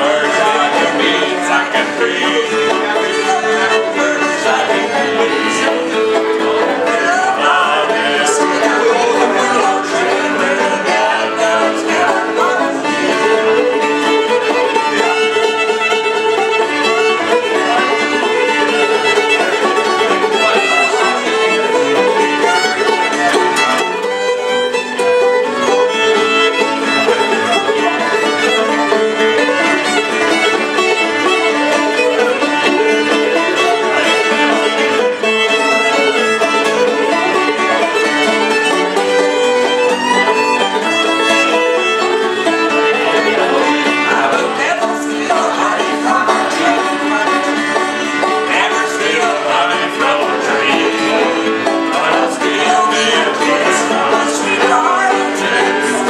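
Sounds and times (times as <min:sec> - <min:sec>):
acoustic guitar: 0:00.0 - 0:56.0
banjo: 0:00.0 - 0:56.0
fiddle: 0:00.0 - 0:56.0.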